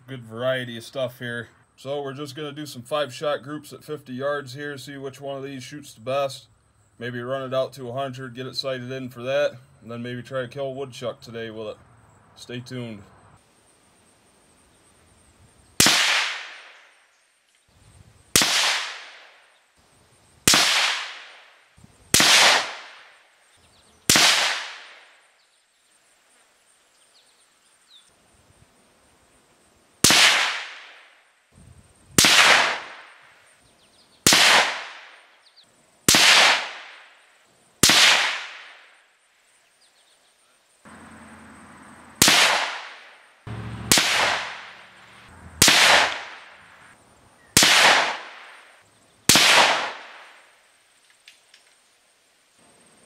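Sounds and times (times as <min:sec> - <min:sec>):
rifle shots cracking: 0:15.8 - 0:16.8, 0:18.3 - 0:19.4, 0:20.4 - 0:23.2, 0:24.1 - 0:25.1, 0:30.0 - 0:31.1, 0:32.2 - 0:33.2, 0:34.2 - 0:35.2, 0:36.1 - 0:37.1, 0:37.8 - 0:38.9, 0:42.2 - 0:46.9, 0:47.6 - 0:50.5.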